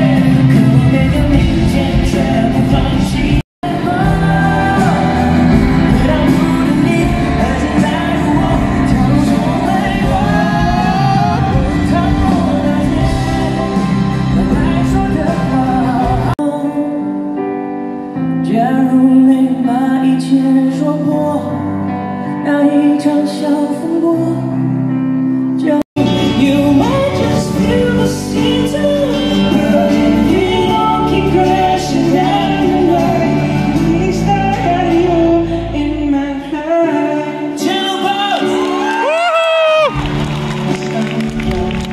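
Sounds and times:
live pop band: 0.0s - 41.9s
person singing: 0.0s - 41.9s.

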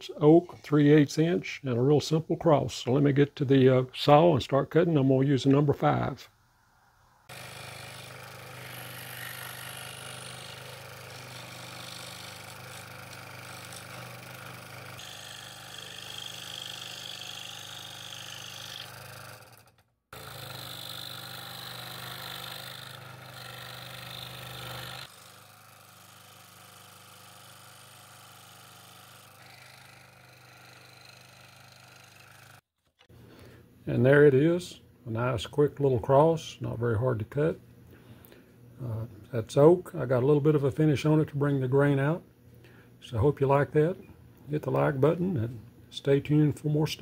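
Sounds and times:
scroll saw cutting wood: 7.3s - 33.1s.

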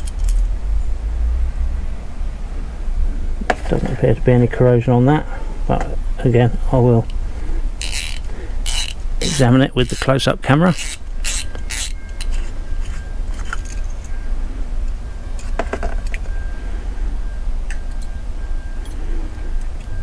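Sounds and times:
steady low hum: 0.0s - 20.0s
small metal parts clinking: 7.8s - 14.2s.

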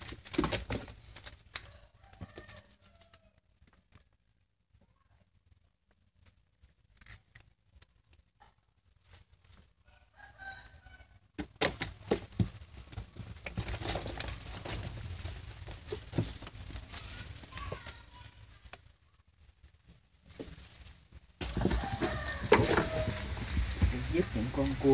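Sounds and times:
shrimp and fish clattering: 0.0s - 1.6s, 11.4s - 18.0s, 20.3s - 24.9s
netting clicks and rustles: 0.0s - 4.5s, 11.4s - 24.9s.

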